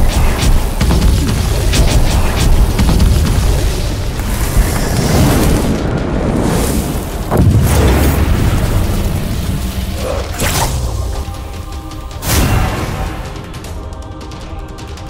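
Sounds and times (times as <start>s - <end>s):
deep rumbling boom: 0.0s - 11.5s.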